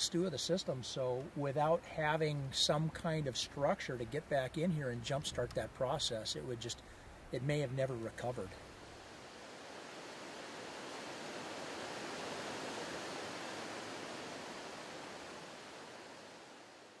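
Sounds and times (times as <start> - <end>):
river water rushing: 8.6 - 17.0.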